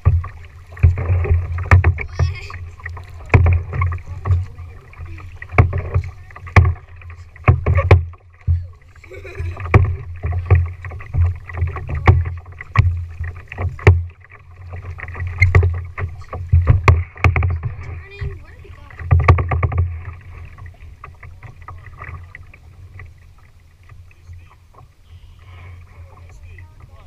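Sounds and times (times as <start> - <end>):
paddle knocking on plastic kayak: 0.0 - 23.2
paddle splashes: 0.0 - 27.0.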